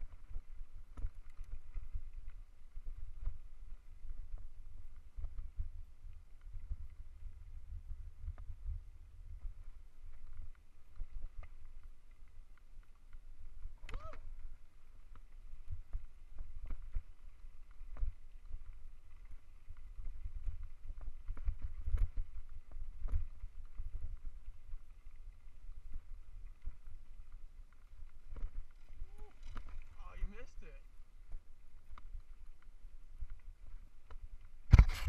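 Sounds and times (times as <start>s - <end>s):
wind buffeting microphone: 2.8s - 9.7s
bike rattling over stones: 26.6s - 30.8s, 33.9s - 35.0s.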